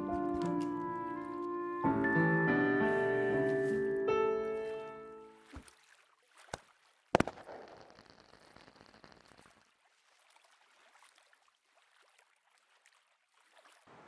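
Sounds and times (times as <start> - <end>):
small pop: 7.2 - 8.0
firework bang: 7.2 - 9.5
crackling fizz: 7.2 - 10.5.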